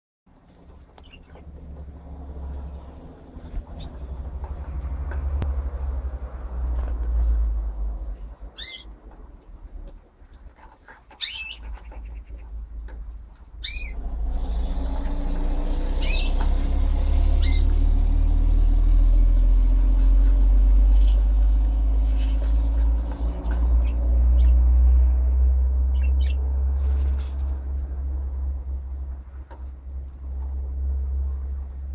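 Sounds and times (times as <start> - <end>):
steady low rumble: 0.4 - 31.9
budgies chirping and squawking: 1.0 - 1.5, 8.5 - 9.0, 10.8 - 12.6, 13.6 - 14.5, 15.4 - 16.6, 17.4 - 17.8, 20.0 - 21.2, 22.0 - 22.9, 25.9 - 27.5.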